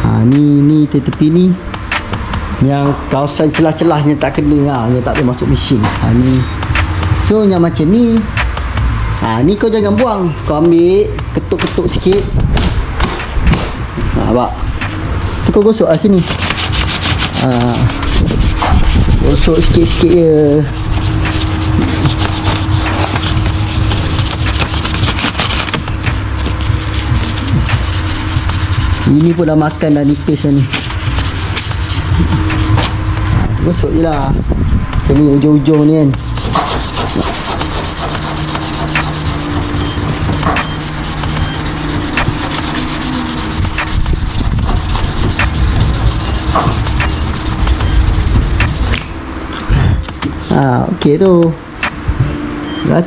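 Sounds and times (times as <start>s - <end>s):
low hum: 5.6s - 9.2s, 12.3s - 51.0s
sandpaper scratching: 15.7s - 33.2s, 36.3s - 49.0s.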